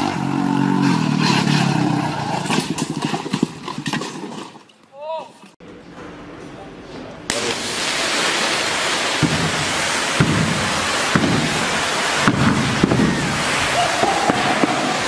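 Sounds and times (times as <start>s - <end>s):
low rumbling: 7.3s - 15.0s
spark fountains hissing: 7.3s - 15.0s.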